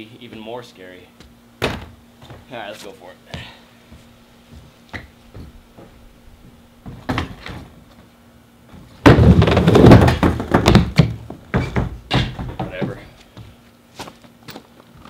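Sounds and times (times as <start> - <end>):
skateboard wheels rolling on wood: 4.5 - 13.5
skateboard knocks on wood: 9.0 - 13.1.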